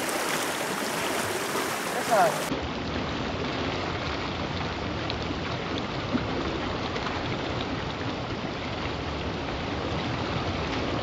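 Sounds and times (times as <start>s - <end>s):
river rapids rushing over rocks: 0.0s - 2.5s.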